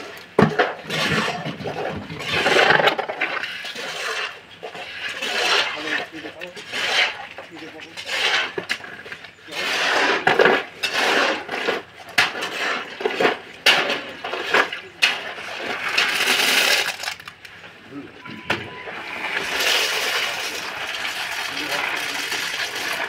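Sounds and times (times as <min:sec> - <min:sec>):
metal pans scraping concrete mix: 0:00.0 - 0:17.3, 0:18.2 - 0:23.0.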